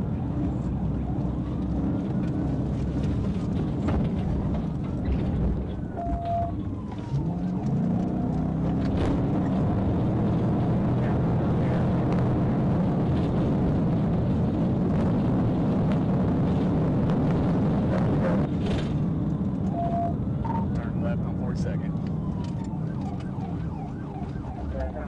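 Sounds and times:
car engine accelerating: 0:00.0 - 0:24.5
tyre and wind noise: 0:01.1 - 0:19.8.

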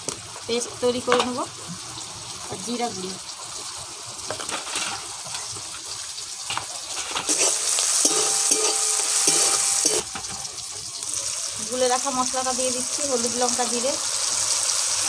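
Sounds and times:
food sizzling in oil: 0:00.0 - 0:15.0
metal spatula scraping pan: 0:06.9 - 0:10.5.

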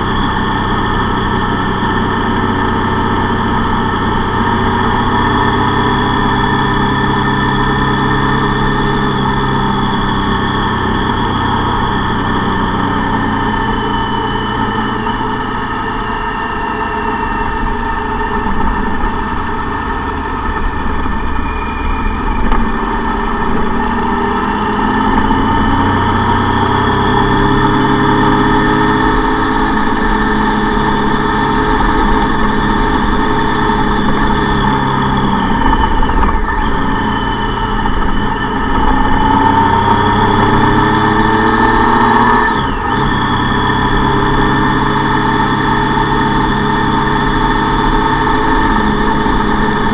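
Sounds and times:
vehicle engine driving on dirt: 0:00.0 - 0:49.9.

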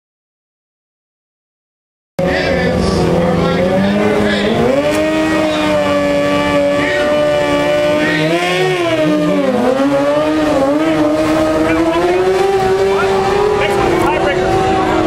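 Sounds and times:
motorcycle engines revving: 0:02.2 - 0:15.0.

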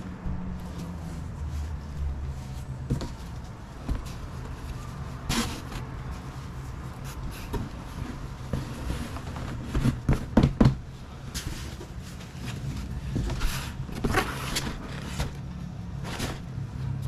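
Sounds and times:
cardboard box knocks and thumps: 0:08.4 - 0:11.7.

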